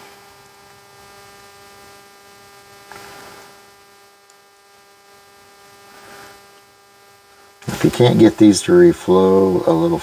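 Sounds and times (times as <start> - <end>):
electrical hum: 0.0 - 10.0
faint hiss: 2.8 - 3.8, 5.7 - 6.6, 7.3 - 10.0.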